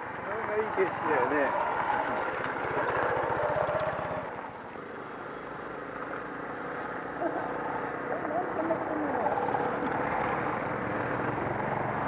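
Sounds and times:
motorcycle engine passing: 0:00.0 - 0:04.5, 0:07.2 - 0:12.0.

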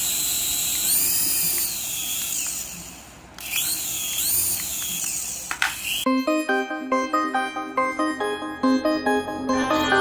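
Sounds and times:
toy helicopter rotor whining: 0:00.0 - 0:06.1.

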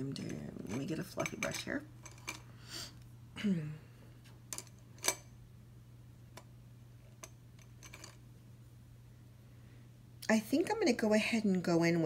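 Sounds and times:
makeup brushes clicking and tapping: 0:00.0 - 0:02.4
faint low hum: 0:00.0 - 0:12.0.

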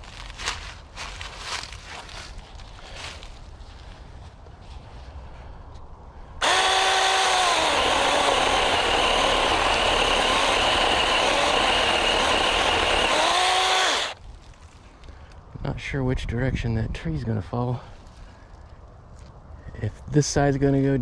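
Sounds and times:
electric chainsaw cutting wood: 0:06.4 - 0:14.2.

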